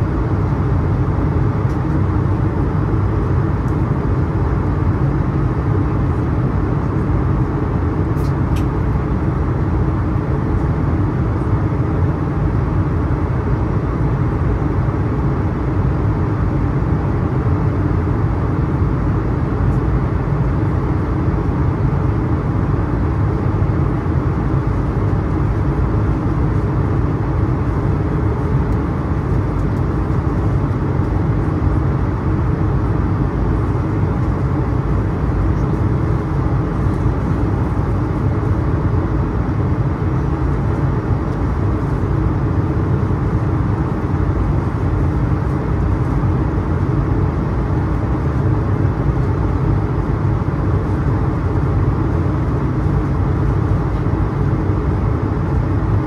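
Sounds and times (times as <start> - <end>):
airplane cabin rumble: 0.0 - 56.0.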